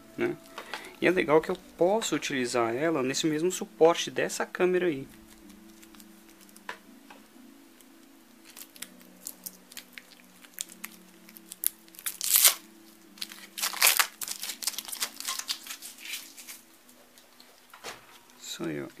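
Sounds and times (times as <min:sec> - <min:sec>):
plastic packaging crinkling and tearing: 0:05.0 - 0:06.8, 0:07.8 - 0:19.0.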